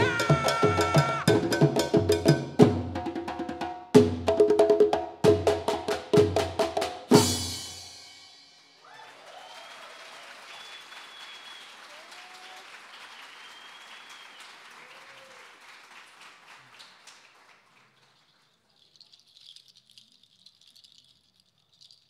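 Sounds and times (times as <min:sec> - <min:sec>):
audience applause: 0:00.0 - 0:01.3, 0:08.8 - 0:18.4
whoops and cheers: 0:00.0 - 0:01.3, 0:08.8 - 0:15.6
percussion ensemble strikes: 0:00.0 - 0:08.7.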